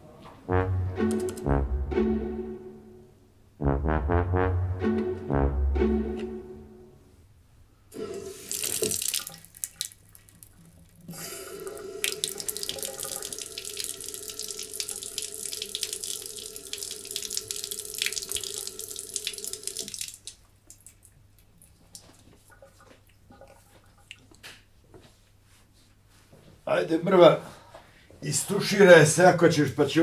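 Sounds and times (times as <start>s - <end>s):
tap running into sink: 8.0s - 9.4s.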